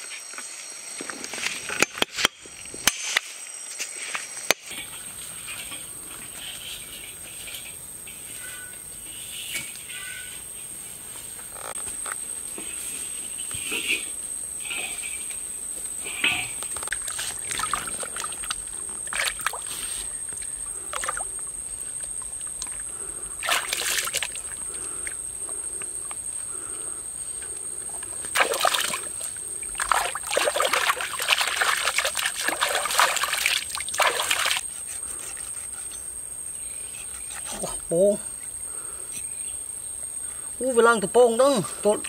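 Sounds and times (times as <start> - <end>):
high insect trill: 0.0 - 42.0
water splashing: 16.8 - 19.9, 20.9 - 21.4, 22.0 - 25.2, 28.2 - 34.6.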